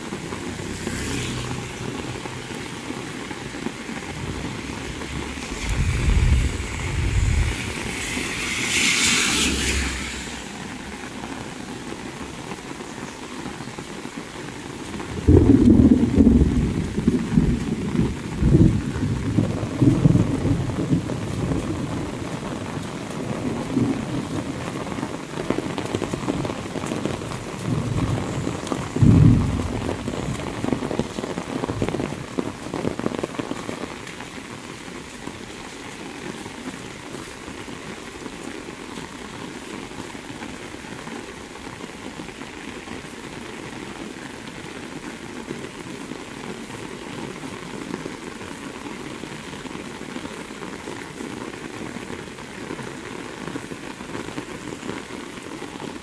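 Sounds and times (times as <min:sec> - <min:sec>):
heavy rain on road: 0:00.0 - 0:56.0
deep rumble: 0:04.0 - 0:11.1.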